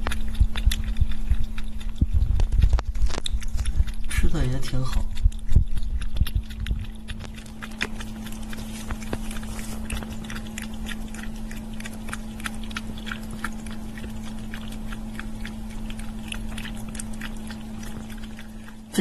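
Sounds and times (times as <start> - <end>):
cat chewing and lapping food: 0.0 - 19.0
steady low hum: 0.0 - 19.0.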